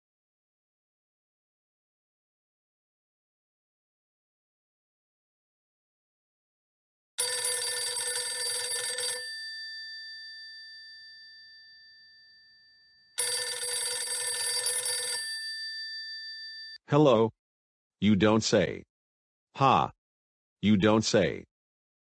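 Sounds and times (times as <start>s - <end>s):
telephone bell ringing: 7.2s - 16.8s.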